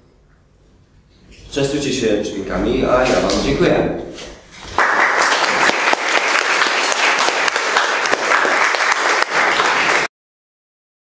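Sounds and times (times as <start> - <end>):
audience applauding: 4.6 - 10.1.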